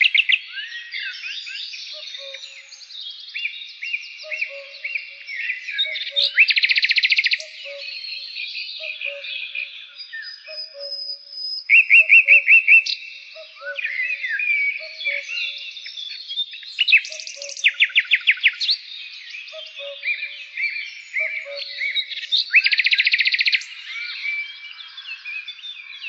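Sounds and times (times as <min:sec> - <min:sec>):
birds singing and chirping: 0:00.0 - 0:26.0
rapid bird trill: 0:11.6 - 0:15.6, 0:16.7 - 0:18.6.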